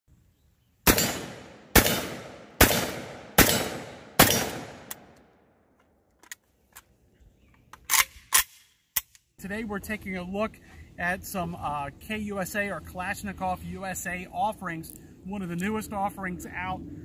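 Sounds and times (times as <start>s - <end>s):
shotgun shots echoing: 0.8s - 5.2s.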